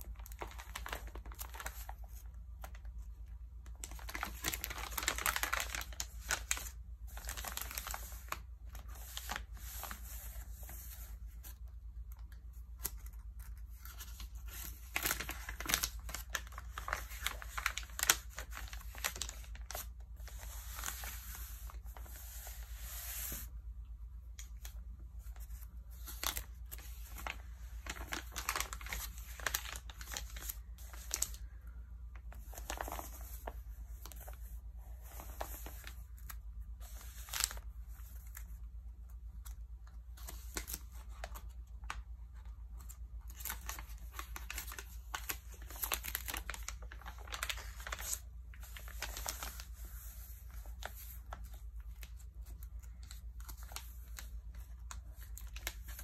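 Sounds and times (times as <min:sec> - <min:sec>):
magazine pages crinkling: 0:00.0 - 0:23.5, 0:24.4 - 0:31.6, 0:32.2 - 0:38.6, 0:39.4 - 0:56.0.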